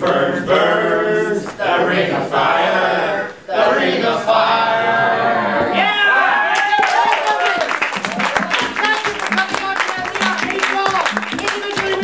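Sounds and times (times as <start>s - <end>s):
voices singing along: 0.0s - 6.4s.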